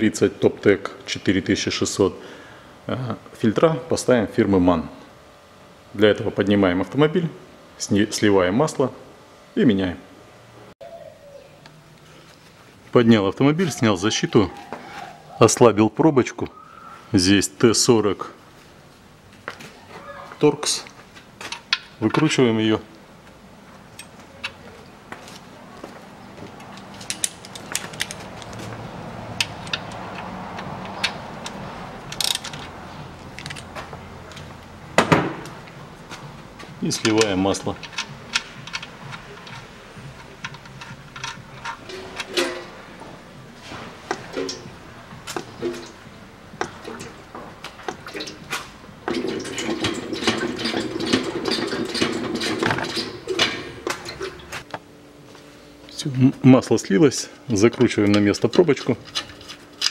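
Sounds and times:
metal clatter: 0:29.4 - 0:32.7, 0:48.0 - 0:54.6.

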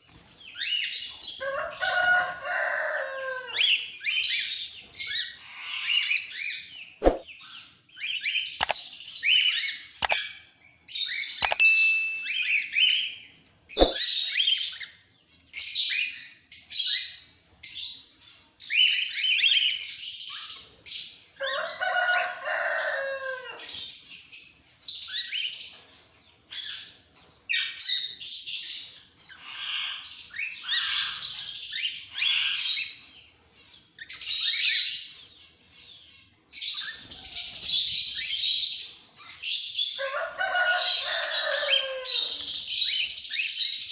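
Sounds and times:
cockatiels chirping and screeching: 0:00.1 - 0:06.7, 0:15.6 - 0:24.0, 0:24.9 - 0:43.9
sharp clicks: 0:08.6 - 0:08.8, 0:10.0 - 0:10.2, 0:11.4 - 0:11.9.

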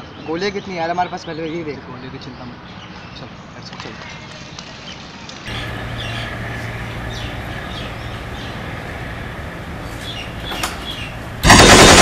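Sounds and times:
steady low hum: 0:05.5 - 0:12.0
automatic gunfire: 0:11.4 - 0:12.0.

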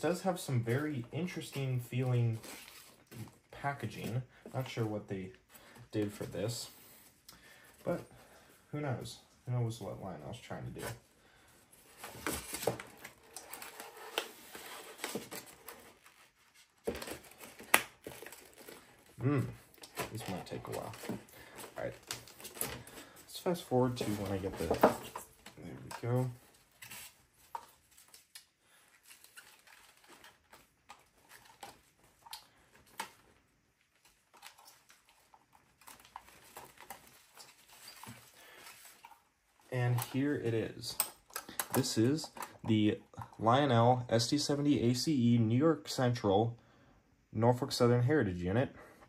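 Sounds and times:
plastic wrapping crinkling: 0:11.9 - 0:40.3
plastic bag crinkling: 0:12.4 - 0:24.7.

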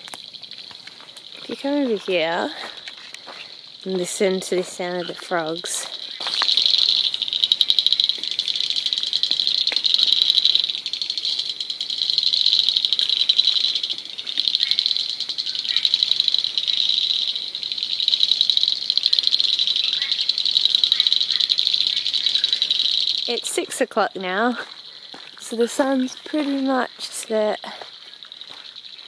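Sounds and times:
frogs trilling: 0:00.0 - 0:29.0
high-pitched rattles: 0:03.7 - 0:23.6.

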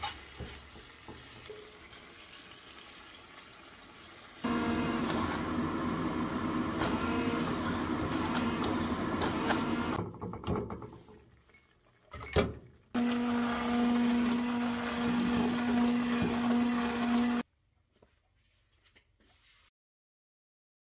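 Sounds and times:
stick blender motor humming: 0:04.4 - 0:10.0, 0:13.0 - 0:17.4.

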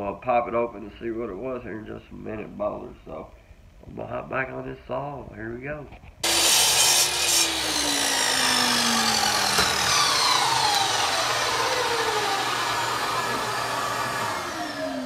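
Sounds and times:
electric saw cutting: 0:06.2 - 0:15.0.

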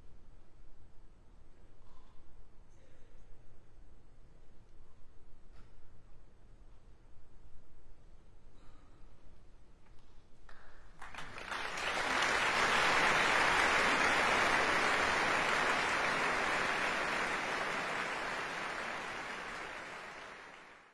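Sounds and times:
audience applauding: 0:11.0 - 0:20.9.

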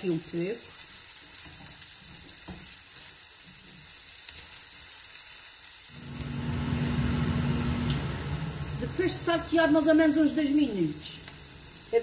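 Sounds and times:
onions sizzling in oil: 0:00.0 - 0:12.0
low steady hum: 0:05.9 - 0:12.0.

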